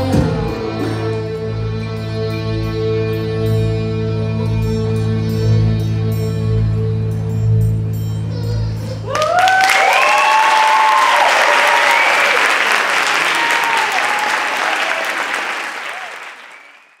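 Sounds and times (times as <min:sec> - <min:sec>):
audience applauding: 0:09.1 - 0:17.0
crowd whooping: 0:09.1 - 0:17.0.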